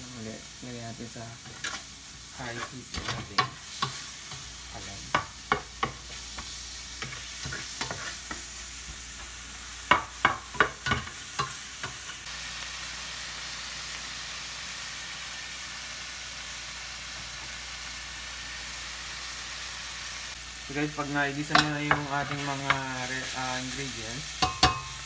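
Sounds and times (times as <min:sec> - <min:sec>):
food sizzling in a pot: 0:00.0 - 0:25.0
spatula scraping and clinking pot: 0:01.5 - 0:01.8, 0:07.0 - 0:08.4, 0:24.4 - 0:25.0.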